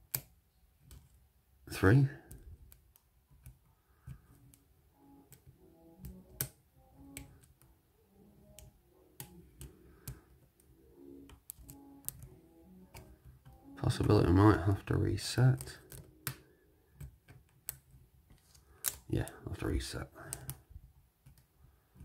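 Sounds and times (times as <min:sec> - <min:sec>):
faint background music: 0:00.0 - 0:22.0.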